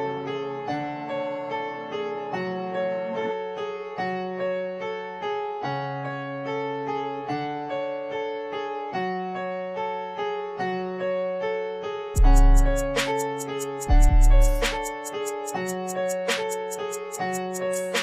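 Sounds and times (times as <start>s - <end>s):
looped keyboard melody: 0.0s - 18.0s
low bass notes: 12.2s - 13.0s, 13.9s - 14.8s.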